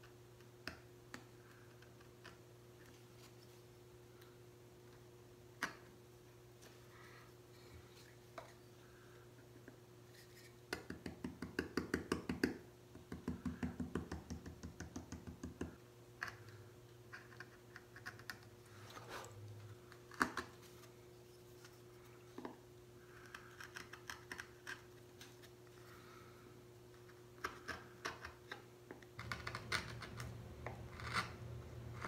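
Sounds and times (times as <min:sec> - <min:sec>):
mallet tapping a carving gouge: 0:10.7 - 0:15.8
gouge clicking and scraping wood: 0:17.1 - 0:18.5, 0:23.2 - 0:24.9, 0:29.2 - 0:32.0.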